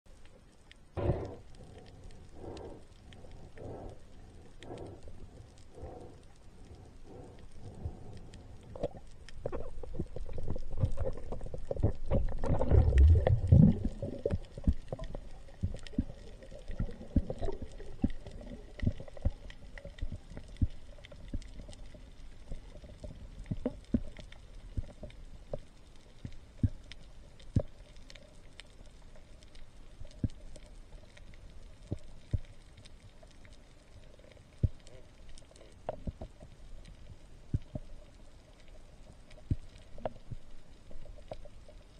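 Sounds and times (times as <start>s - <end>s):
underwater clicks and crackles: 0.1s - 41.9s
water rushing over camera: 1.0s - 25.0s.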